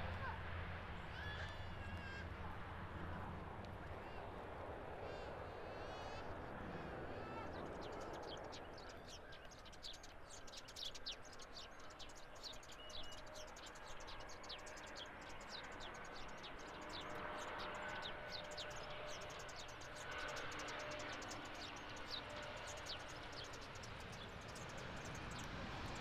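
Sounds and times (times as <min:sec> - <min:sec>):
small birds chirping: 0:03.7 - 0:26.0
jet engine whine: 0:16.0 - 0:26.0.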